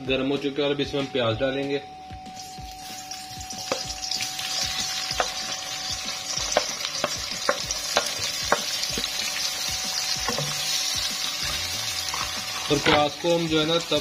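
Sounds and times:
onions sizzling in hot oil: 2.4 - 14.0
wooden spatula knocking on pan: 5.2 - 5.4, 6.5 - 9.1, 10.2 - 10.6.

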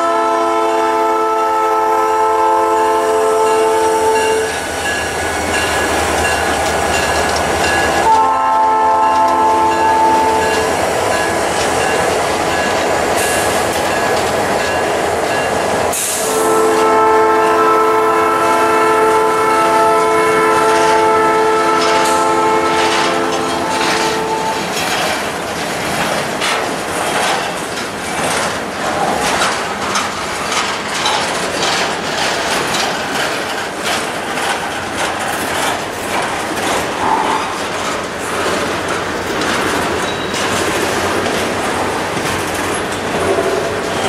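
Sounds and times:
diesel locomotive horn chord: 0.0 - 4.6, 8.0 - 10.6, 16.0 - 24.6
train wheels clicking over rail joints: 2.2 - 44.0.

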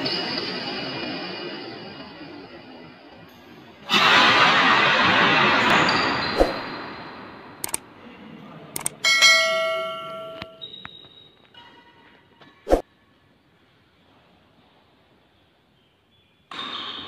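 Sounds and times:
bell chime: 9.0 - 10.9.

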